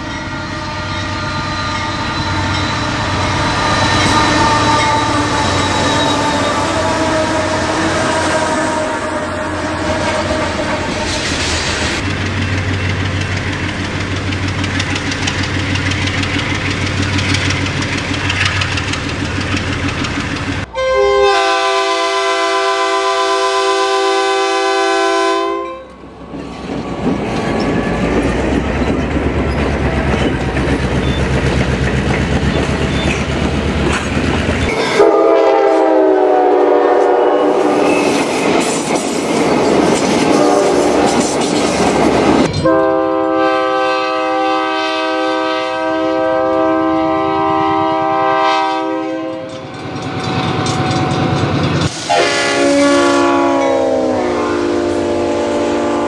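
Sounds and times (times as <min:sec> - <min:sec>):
train air horn: 0:00.0 - 0:11.2, 0:20.6 - 0:26.0, 0:34.7 - 0:38.2, 0:40.2 - 0:41.2, 0:42.5 - 0:49.6, 0:51.9 - 0:56.0
diesel locomotive engine rumbling: 0:00.0 - 0:56.0
train rumbling past: 0:00.0 - 0:56.0.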